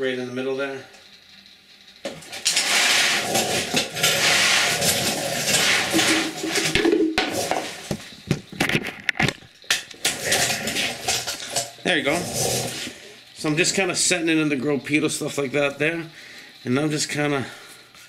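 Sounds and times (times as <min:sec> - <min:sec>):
sharp clicks and knocks: 0:04.8 - 0:11.8.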